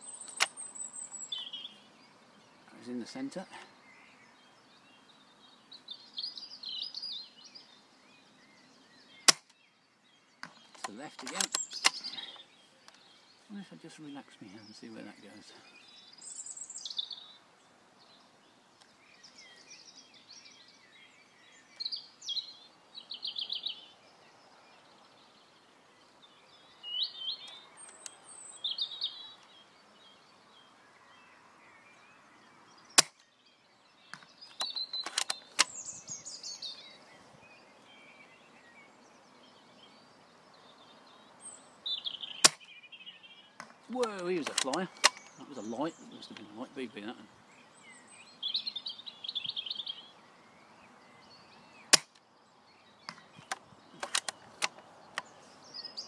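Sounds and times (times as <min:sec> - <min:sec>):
songbirds chirping: 0:00.0 - 0:56.0
sharp loud clicks: 0:00.2 - 0:00.6, 0:09.2 - 0:09.6, 0:10.4 - 0:12.1, 0:33.0 - 0:33.3, 0:34.1 - 0:35.8, 0:42.4 - 0:42.7, 0:43.6 - 0:45.4, 0:51.9 - 0:52.2, 0:53.1 - 0:55.3.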